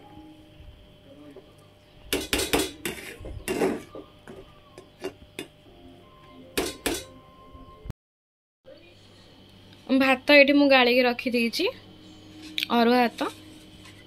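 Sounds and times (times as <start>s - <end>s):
metal lid knocking on pot: 6.6s - 7.1s.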